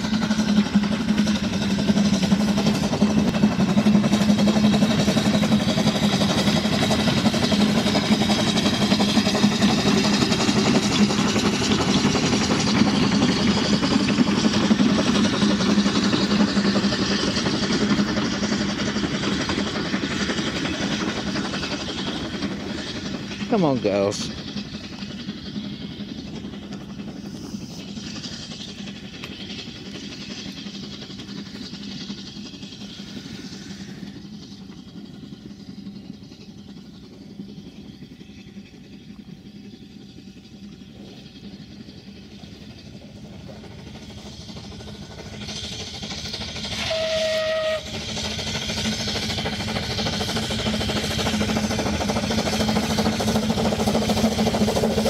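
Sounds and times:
steam locomotive working: 0:00.0 - 0:55.0
steam whistle blast: 0:46.8 - 0:48.0.

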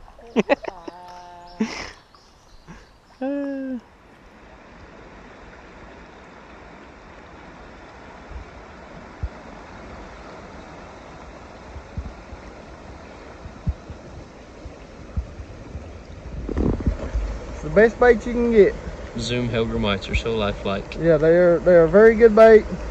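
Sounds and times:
whitewater rushing over rocks: 0:04.6 - 0:22.9
low thumps: 0:13.4 - 0:17.6.

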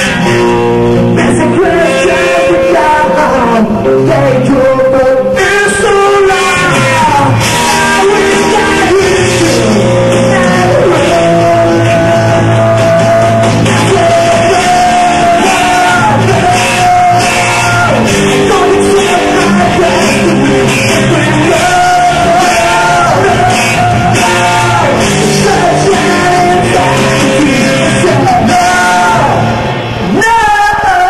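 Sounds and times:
bass: 0:00.0 - 0:31.0
drums: 0:00.0 - 0:31.0
electric guitar: 0:00.0 - 0:31.0
singer holding long notes: 0:00.0 - 0:31.0.

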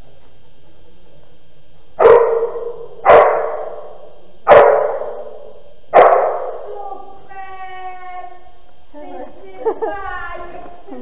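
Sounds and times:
dog barking with echo: 0:02.0 - 0:06.7.

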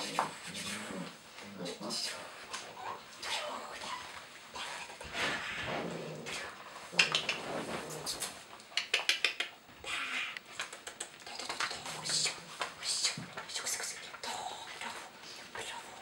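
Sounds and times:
puppy claws clicking on floor: 0:06.9 - 0:07.5, 0:08.2 - 0:09.6, 0:10.4 - 0:13.9.

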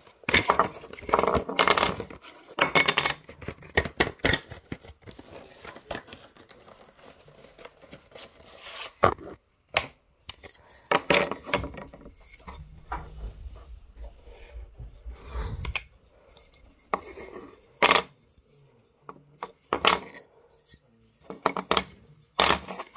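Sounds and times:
wood sliding on tabletop: 0:11.3 - 0:17.6.

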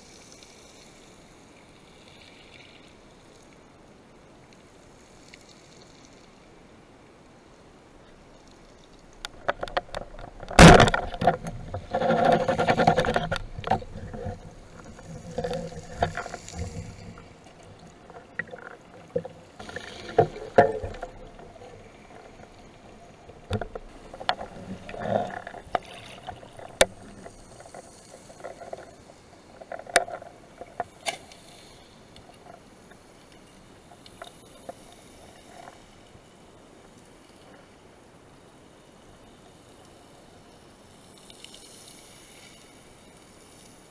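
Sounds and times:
clicks and knocks of gear: 0:09.2 - 0:16.6, 0:29.6 - 0:31.3.

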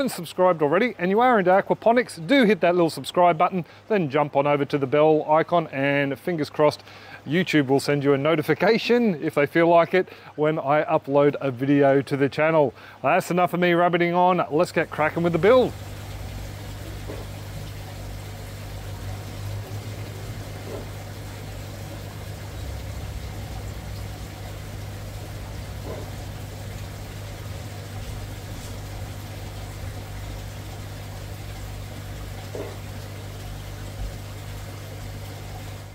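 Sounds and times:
pump humming: 0:14.4 - 0:35.9
water splashing in tank: 0:14.4 - 0:35.9.

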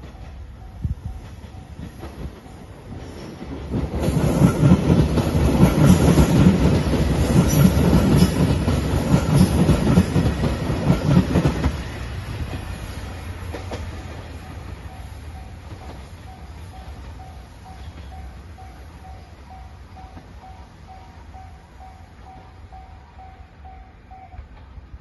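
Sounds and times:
train wheels clattering over rail joints: 0:01.1 - 0:15.0.

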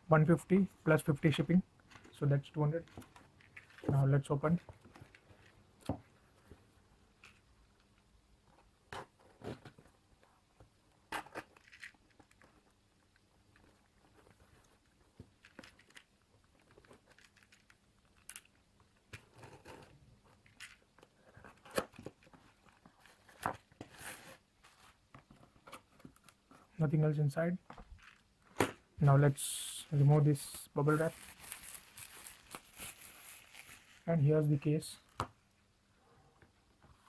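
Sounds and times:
bubble wrap rustling: 0:29.0 - 0:35.0.

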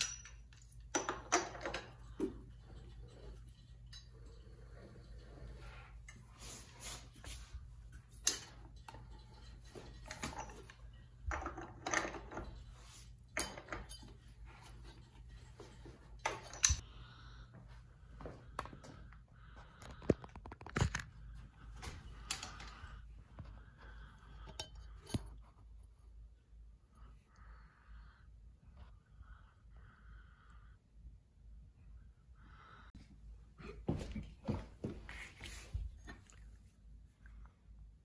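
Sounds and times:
metallic clicks and clinks: 0:00.0 - 0:04.5, 0:16.1 - 0:16.8.

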